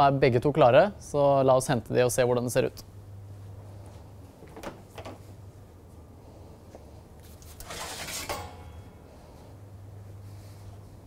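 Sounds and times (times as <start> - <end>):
steady low hum: 0.0 - 11.0
metal baking tray clattering: 7.6 - 8.9.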